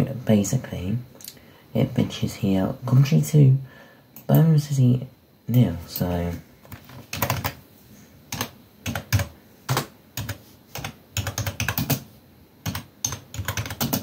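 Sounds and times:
computer keyboard typing: 6.0s - 7.6s, 8.3s - 14.0s.

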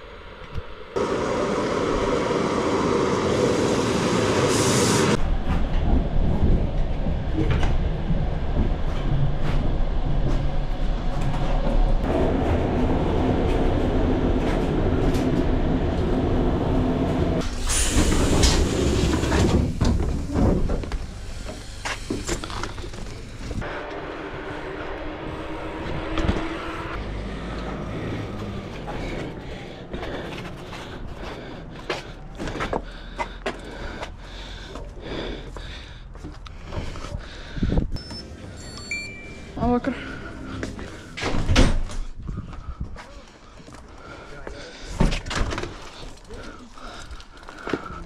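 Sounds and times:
train running rumble: 0.2s - 37.9s.

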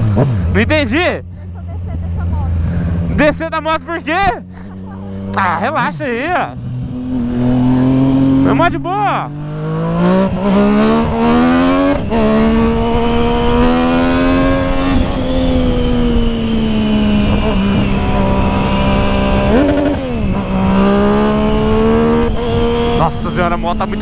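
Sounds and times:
motorcycle engine accelerating hard: 0.0s - 1.0s, 1.7s - 24.0s
wind rushing over microphone: 9.3s - 24.0s.

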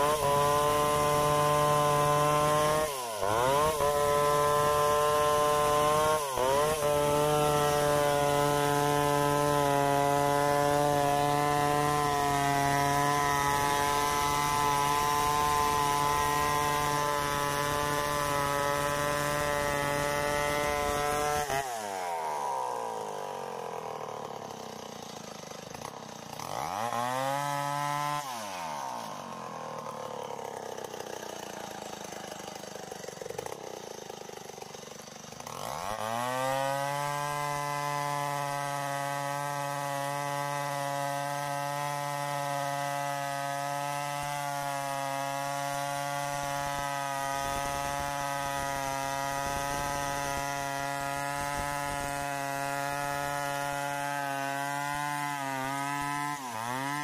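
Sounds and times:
chainsaw cutting through log: 0.0s - 57.0s.

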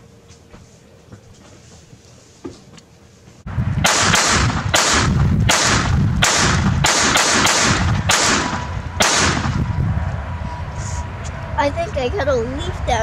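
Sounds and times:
pistol shots: 3.8s - 9.6s.

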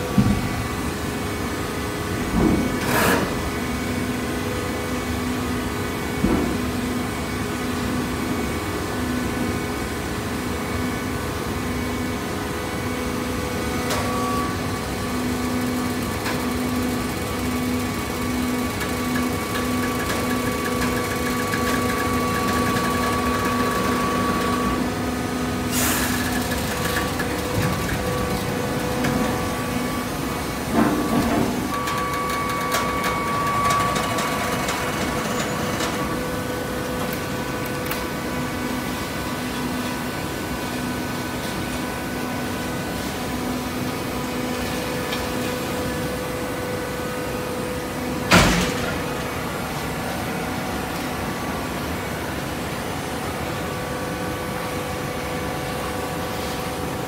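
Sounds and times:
hydraulic baler motor humming: 15.6s - 38.2s.

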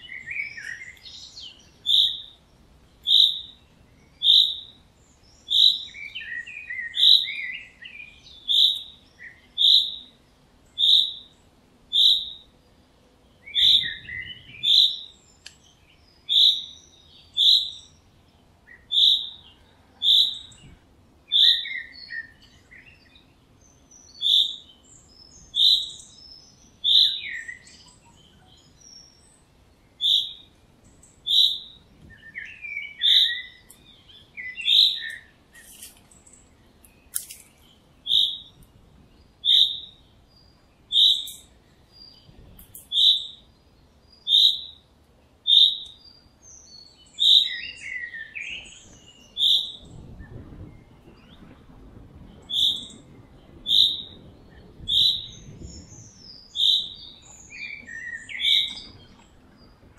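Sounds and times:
bird chirping: 0.0s - 59.9s
soft bird twittering: 0.0s - 59.9s.

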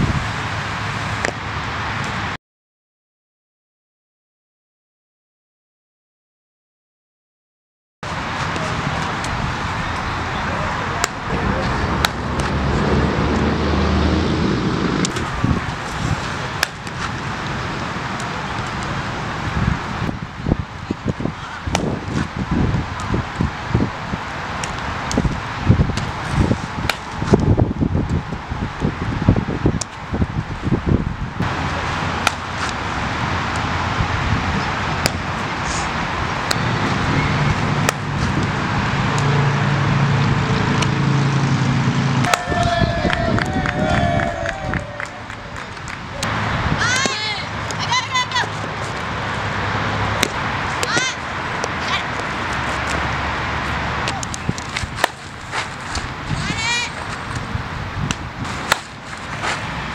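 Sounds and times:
steady traffic noise: 0.0s - 2.4s, 8.0s - 59.9s
wind noise on microphone: 0.0s - 2.4s, 8.1s - 59.9s
low hum of vehicle engine: 8.1s - 20.2s, 31.2s - 59.9s.

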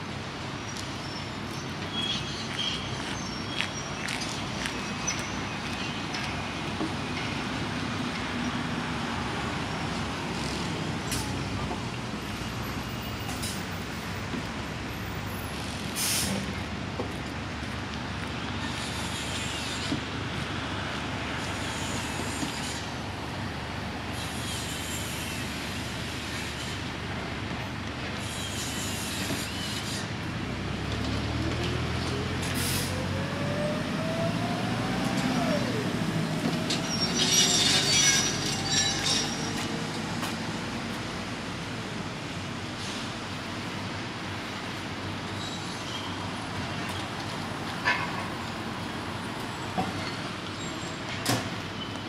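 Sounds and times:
construction site and city din: 0.0s - 52.0s
loud hissing and squealing: 24.2s - 26.8s, 35.3s - 39.8s.

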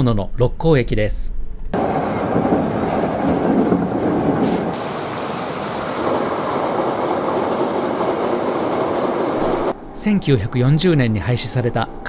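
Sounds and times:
train wheels on rails: 1.8s - 9.8s
train crossing a bridge: 1.8s - 12.0s.

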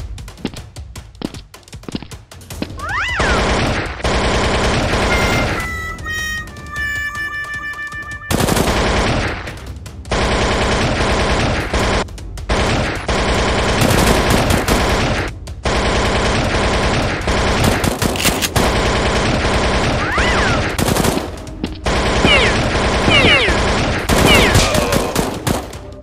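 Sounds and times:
rapid automatic gunfire: 3.2s - 5.8s, 8.3s - 26.0s.

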